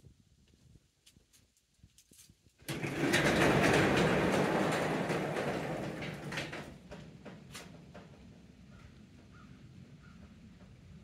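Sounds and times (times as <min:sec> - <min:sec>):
garage door rolling up: 0:02.6 - 0:08.4.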